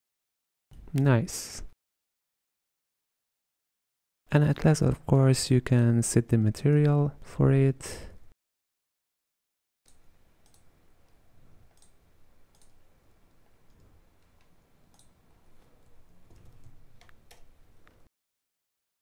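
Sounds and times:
mouse clicks: 0:11.7 - 0:12.8, 0:14.4 - 0:15.1.

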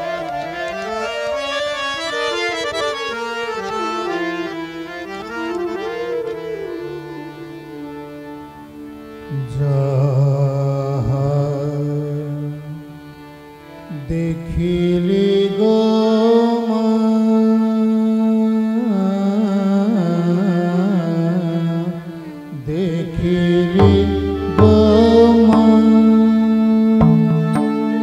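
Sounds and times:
instrumental accompaniment: 0:00.0 - 0:09.5, 0:22.4 - 0:28.0
man singing: 0:09.3 - 0:12.8, 0:13.9 - 0:28.0
drum strokes: 0:23.8 - 0:28.0.

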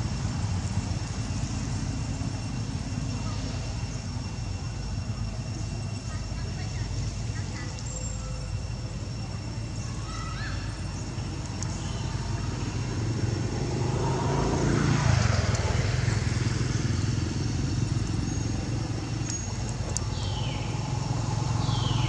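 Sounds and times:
passing vehicle engine: 0:12.0 - 0:22.0.

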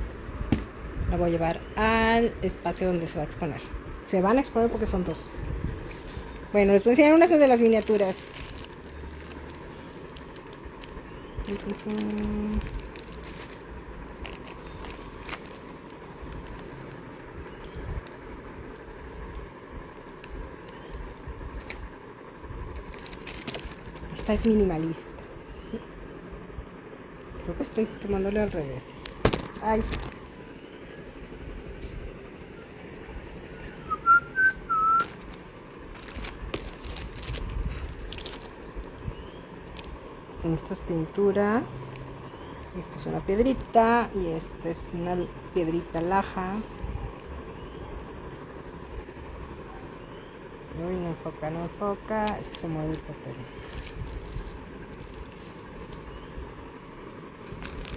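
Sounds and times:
plastic sleeves crinkling: 0:06.8 - 0:21.9, 0:22.7 - 0:25.8, 0:28.9 - 0:30.4, 0:34.9 - 0:40.0, 0:52.2 - 0:56.2, 0:57.4 - 0:57.9
person whistling: 0:33.8 - 0:35.2.

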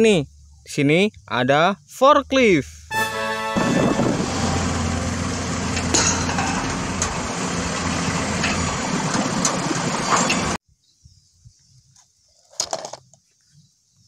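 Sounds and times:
forklift engine running: 0:03.2 - 0:09.9.

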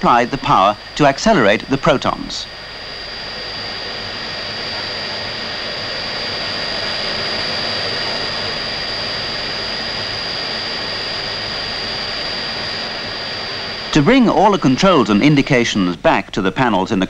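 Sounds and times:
high steady whine: 0:00.0 - 0:17.0.

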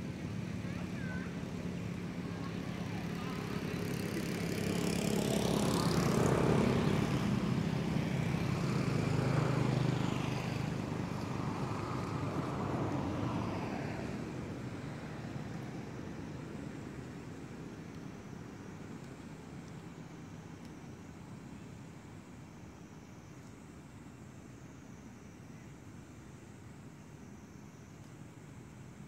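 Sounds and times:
motor engine passing by: 0:00.3 - 0:14.4.

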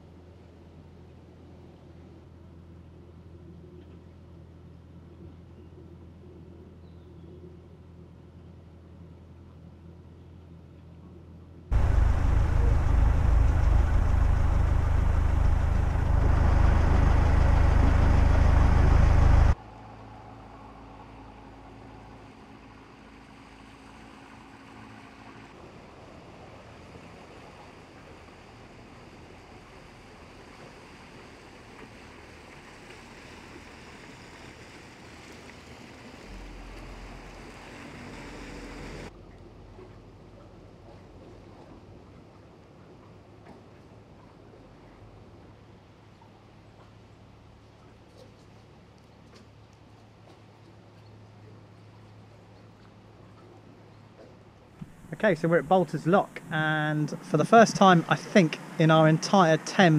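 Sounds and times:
rushing wind and water: 0:11.7 - 0:19.6
boat engine humming: 0:11.7 - 0:59.9.

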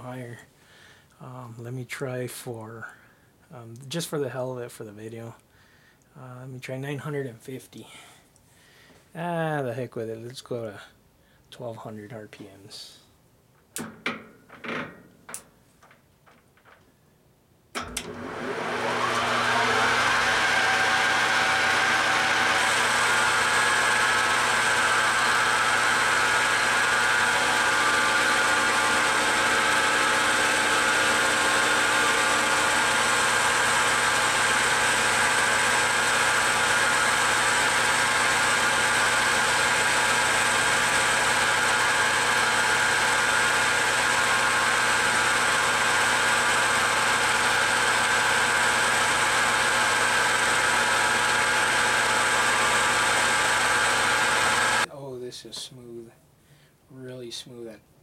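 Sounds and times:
metal lathe whining: 0:17.8 - 0:54.9
tool cutting aluminum: 0:17.8 - 0:54.9.

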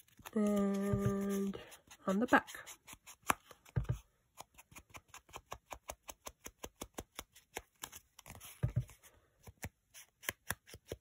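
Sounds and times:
ink applicator tapping paper: 0:00.5 - 0:01.5.

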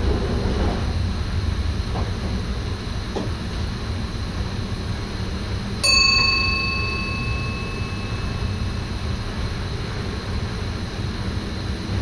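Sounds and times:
train running rumble: 0:00.0 - 0:12.0
bell-like chime: 0:05.8 - 0:09.2.

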